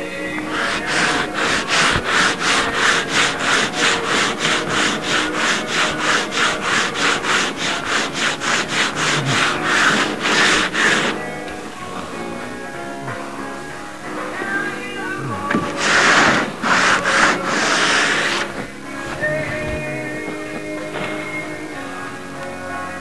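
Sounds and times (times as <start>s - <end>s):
hand tool stroking wood: 0.0s - 12.3s, 14.4s - 21.6s.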